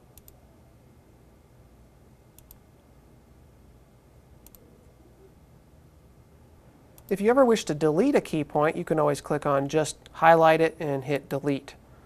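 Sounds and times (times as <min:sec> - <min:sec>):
low steady room hum: 0:00.0 - 0:12.0
computer mouse clicks: 0:00.1 - 0:00.4, 0:02.4 - 0:02.6, 0:04.4 - 0:04.6.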